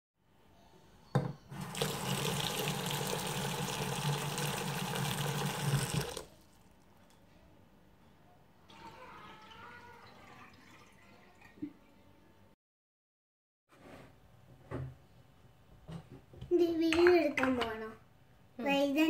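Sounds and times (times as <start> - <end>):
tap water running into basin: 1.5 - 6.3.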